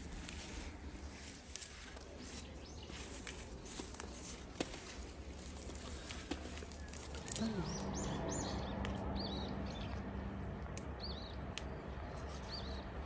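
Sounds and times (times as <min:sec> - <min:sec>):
cherries rolling in basket: 0:00.0 - 0:07.9
steady low rumble: 0:00.0 - 0:13.0.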